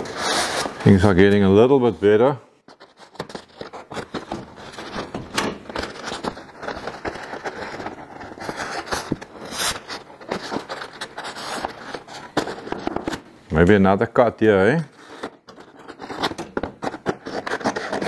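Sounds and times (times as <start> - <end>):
cardboard scraping on metal: 0.0 - 1.1, 2.7 - 13.2, 14.9 - 18.0
cardboard crinkling and rustling: 2.7 - 13.2, 14.9 - 18.0.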